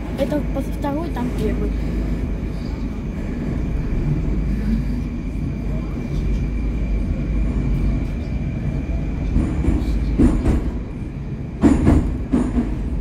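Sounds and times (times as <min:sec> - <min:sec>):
train carriage rumble: 0:00.0 - 0:13.0
train wheel knocks and clatter: 0:09.1 - 0:13.0.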